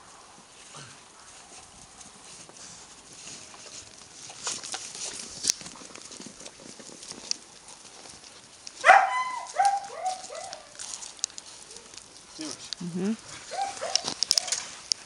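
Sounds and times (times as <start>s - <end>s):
clicks and scuffles: 2.3s - 12.8s
puppies yelping: 8.8s - 12.0s, 13.4s - 14.6s.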